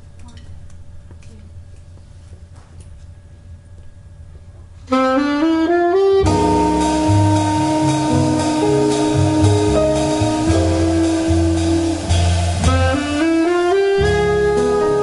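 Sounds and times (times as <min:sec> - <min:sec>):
jazz quartet playing: 0:04.9 - 0:15.0.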